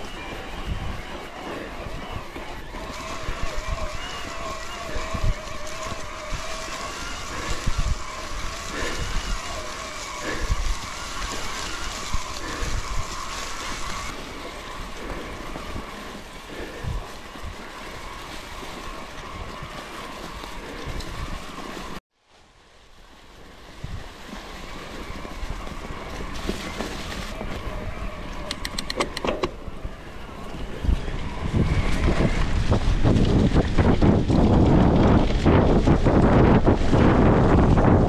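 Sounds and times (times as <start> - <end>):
bicycle rolling noise and knocks: 0.0 - 22.0, 22.9 - 38.0
wind on microphone: 0.0 - 22.0, 23.6 - 38.0
sharp clicks: 28.5 - 29.6.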